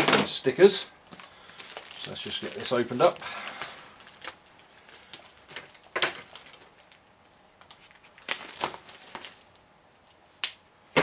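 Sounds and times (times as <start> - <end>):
plastic wrapping crinkling: 0.2 - 9.6
sharp plastic crackles: 1.1 - 9.7.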